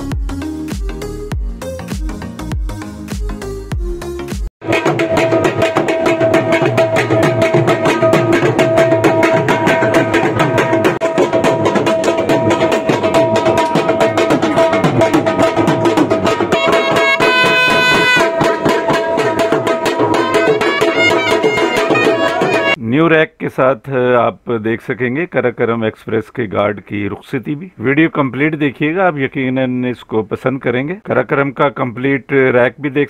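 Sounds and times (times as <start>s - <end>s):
fast hand drumming: 4.6s - 22.8s
held melody notes: 5.8s - 22.8s.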